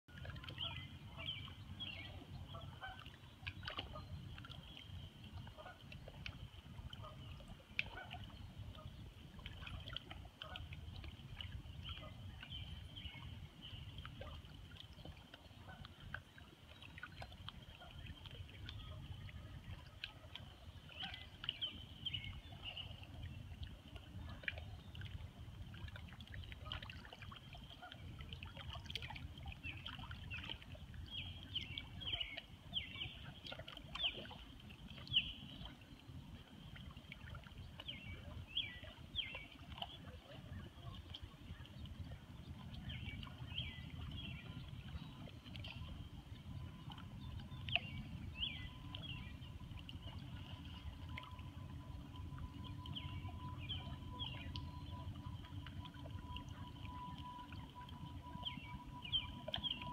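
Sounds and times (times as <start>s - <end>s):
river water lapping on rocks: 0.1s - 59.9s
steady low rumble: 40.1s - 59.9s.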